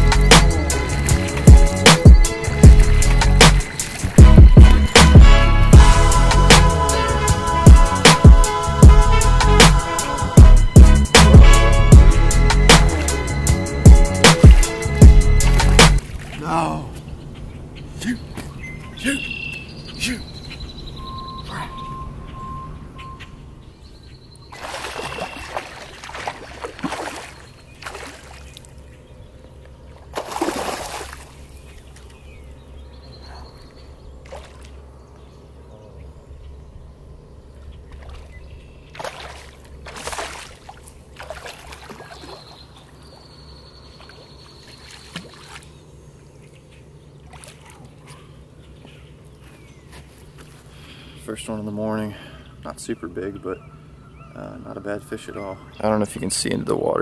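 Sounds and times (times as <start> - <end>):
fish splashing in water: 24.5 - 28.8, 30.0 - 32.1, 37.9 - 43.3, 43.9 - 45.8, 47.2 - 48.2.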